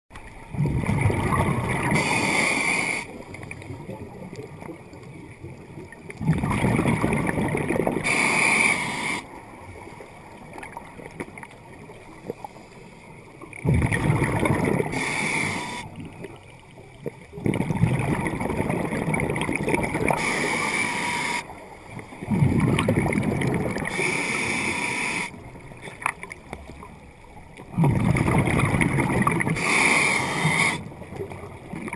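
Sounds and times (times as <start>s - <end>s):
diver breathing through regulator: 1.9s - 3.1s, 8.0s - 9.3s, 14.8s - 15.9s, 20.1s - 21.4s, 23.8s - 25.4s, 29.5s - 30.8s.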